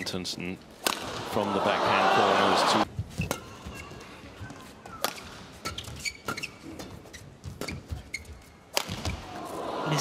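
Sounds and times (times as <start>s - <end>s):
shoes squeaking on court: 3.0s - 9.3s
racket hitting shuttlecock: 4.8s - 7.8s, 8.7s - 9.2s.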